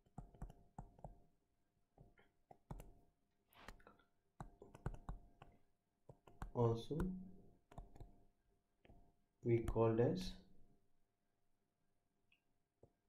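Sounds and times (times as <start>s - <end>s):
stylus tapping on tablet screen: 0.0s - 1.3s, 2.0s - 3.0s, 4.4s - 8.2s.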